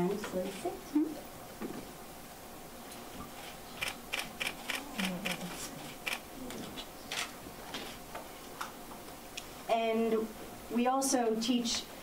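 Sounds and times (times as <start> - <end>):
camera shutters clicking: 3.8 - 5.4.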